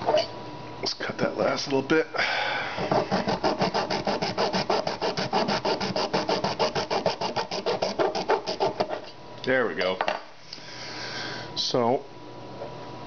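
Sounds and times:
hacksaw cutting plastic: 2.9 - 9.0.

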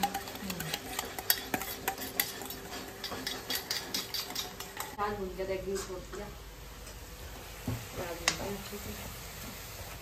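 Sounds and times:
spoon whisking in a bowl: 0.0 - 5.1.

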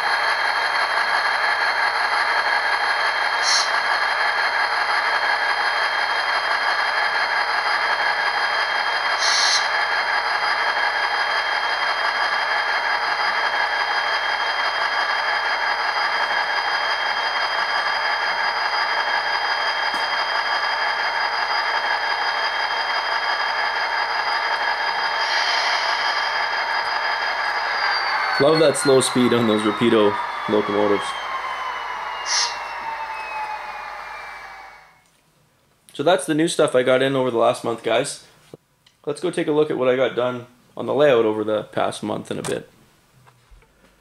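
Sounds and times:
model locomotive running with whine: 0.0 - 35.1
brief high hisses: 3.4 - 3.8, 9.2 - 9.7, 32.3 - 32.6.

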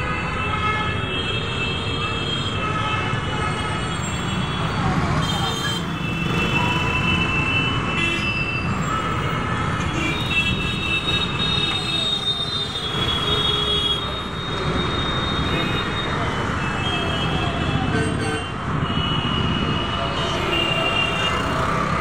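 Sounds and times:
road traffic rumble: 0.0 - 22.0
train wheels squealing: 14.0 - 16.2.

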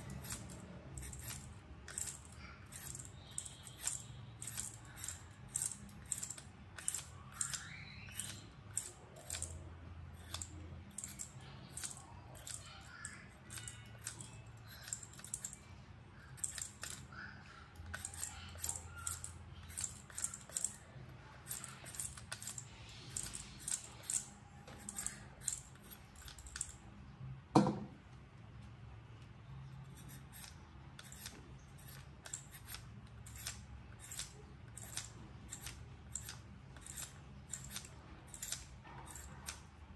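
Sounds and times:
peeler scraping potato skin: 0.0 - 26.8, 29.8 - 39.9
loud knock: 27.6 - 27.9.

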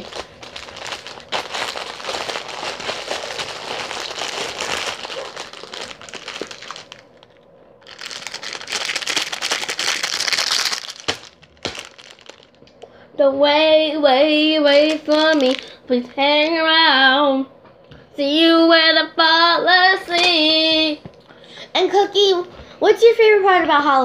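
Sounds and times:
plastic wrappers crinkling: 0.0 - 12.9, 14.6 - 16.6.

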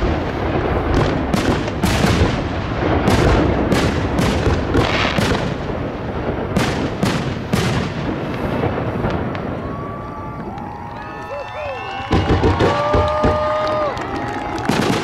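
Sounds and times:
rumble of booms: 0.0 - 10.4
firework bangs: 0.0 - 15.0.

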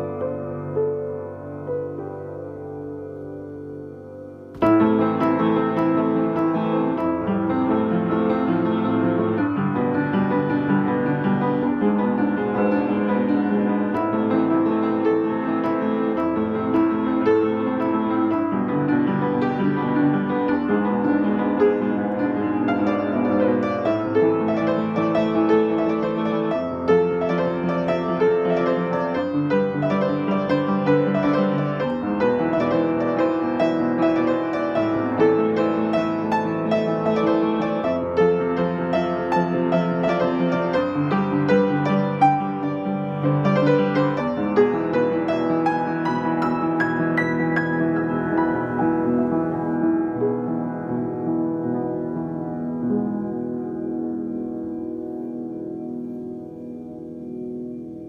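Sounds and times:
solo piano music: 0.0 - 58.0.

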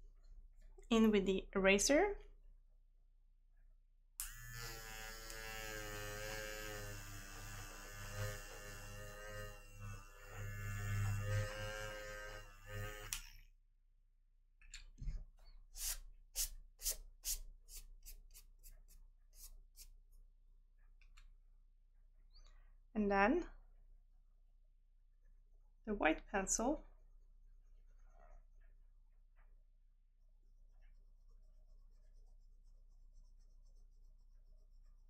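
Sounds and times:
electric eraser buzzing: 4.2 - 13.4.

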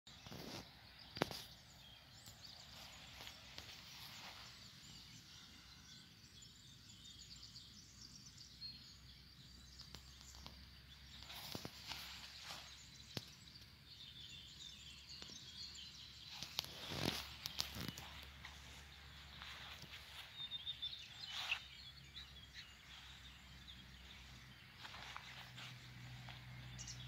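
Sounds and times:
distant bird calls: 0.1 - 27.0.

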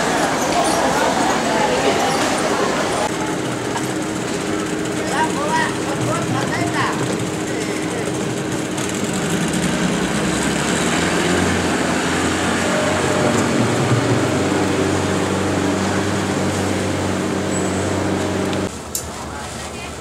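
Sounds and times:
boat engine droning: 0.0 - 20.0.

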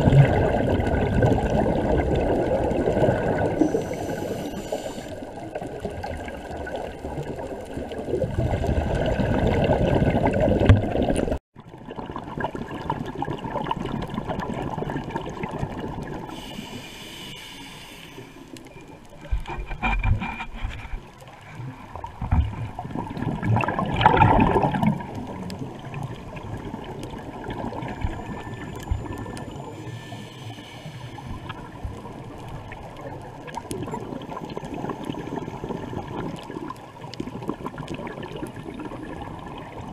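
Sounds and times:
steady water hiss: 0.0 - 8.2, 16.1 - 22.9, 24.6 - 39.8
regulator bubbles gurgling underwater: 0.0 - 17.3, 18.2 - 39.9.

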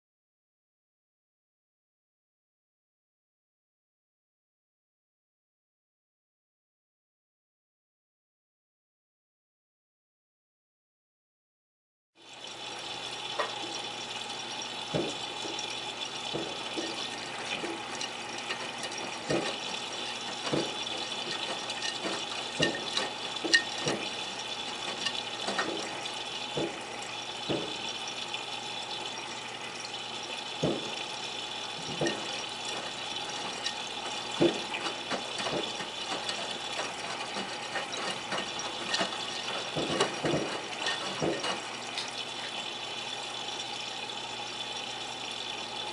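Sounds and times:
washing machine water spraying: 12.2 - 45.9
wet laundry splashing and knocking: 14.8 - 28.0, 30.6 - 31.1, 31.7 - 42.2.

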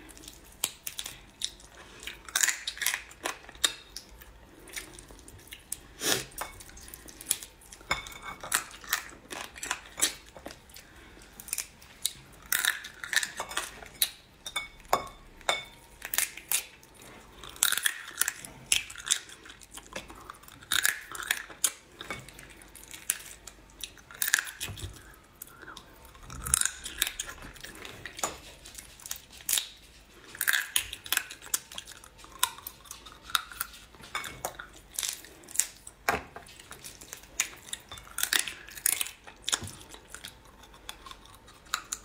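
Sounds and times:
chewing and sucking: 16.1 - 42.0.

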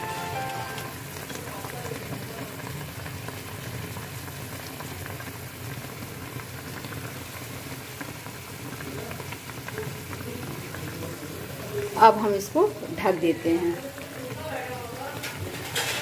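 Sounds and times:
water boiling with bubbling hiss: 0.0 - 16.0.

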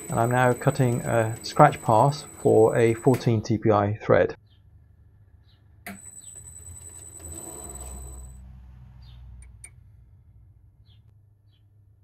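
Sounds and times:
machine high whine: 0.0 - 3.4, 5.9 - 8.4.

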